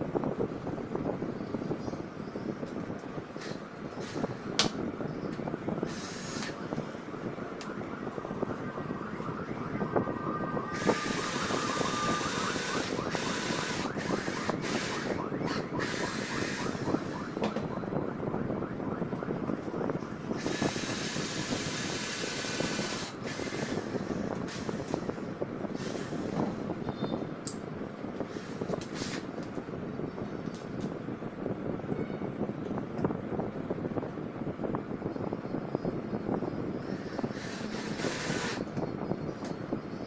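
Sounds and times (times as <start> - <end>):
drill motor whining: 3.4 - 4.5, 5.8 - 6.9, 10.7 - 17.6, 20.4 - 26.6, 28.3 - 29.3, 36.8 - 38.8
mechanical rattle and hiss: 3.4 - 4.5, 28.3 - 29.3, 36.8 - 38.7.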